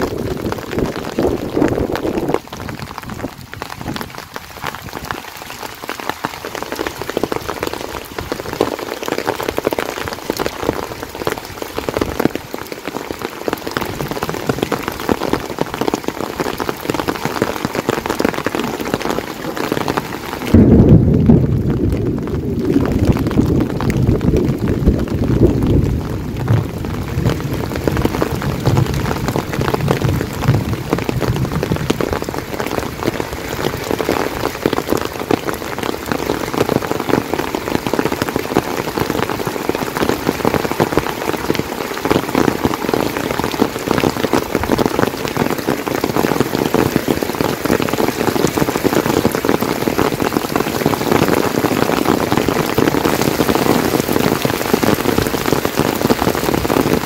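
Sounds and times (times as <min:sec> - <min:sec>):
heavy rain falling: 0:00.0 - 0:57.0
low rumble: 0:20.5 - 0:27.5.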